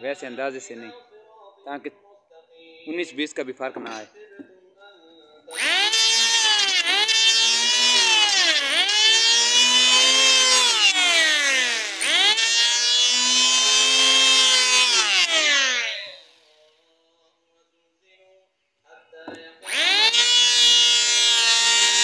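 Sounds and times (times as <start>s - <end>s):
electric planer motor whining: 5.5s - 16.6s, 19.6s - 22.0s.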